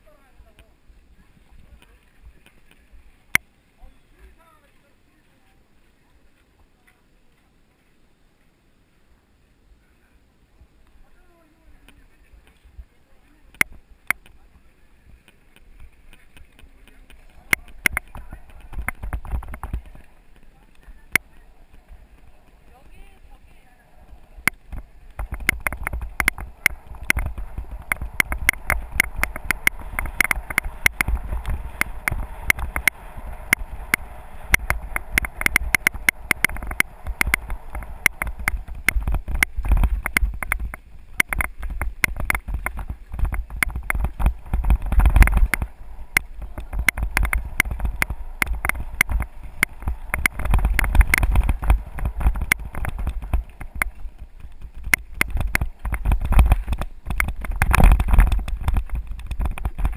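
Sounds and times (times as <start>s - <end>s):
mountain bike rattling over ground: 15.4s - 59.9s
bike jolts: 15.6s - 59.9s
low rumble: 17.1s - 59.9s.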